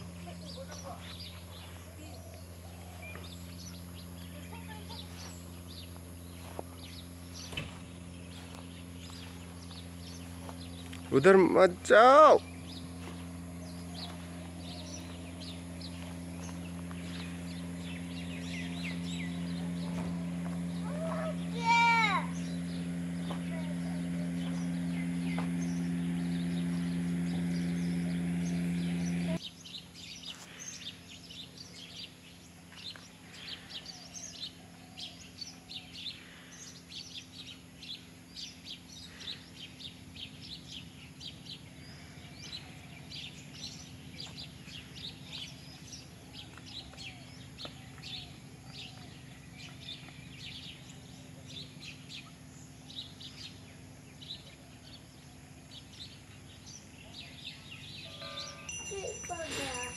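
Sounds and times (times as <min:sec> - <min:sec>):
birds chirping: 0:00.0 - 0:59.9
loud steady hum: 0:00.0 - 0:59.9.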